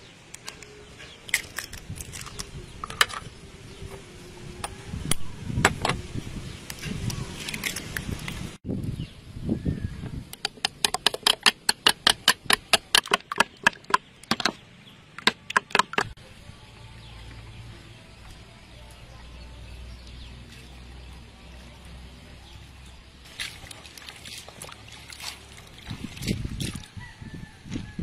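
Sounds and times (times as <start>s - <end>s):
egg yolks beaten in a bowl: 10.4s - 14.5s, 15.2s - 16.2s.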